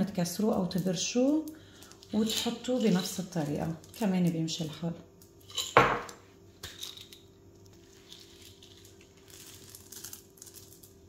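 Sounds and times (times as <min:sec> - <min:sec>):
steady low hum: 0:00.0 - 0:11.0
faint rustling and crinkling: 0:00.5 - 0:05.0, 0:07.5 - 0:11.0.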